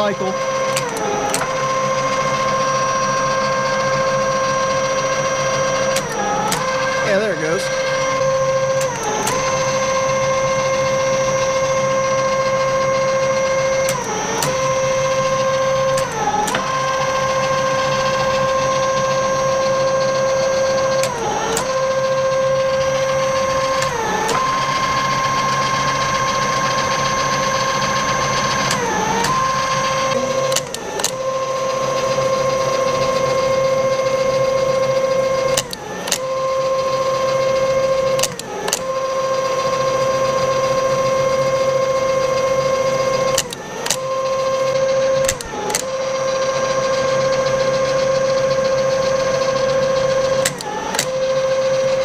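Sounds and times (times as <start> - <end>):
milling machine whine: 0.0 - 52.0
machine clicking: 0.6 - 2.3, 5.1 - 10.2, 13.7 - 18.5, 20.8 - 24.6, 28.6 - 31.4, 35.4 - 37.0, 37.8 - 39.8, 43.2 - 46.3, 50.2 - 52.0.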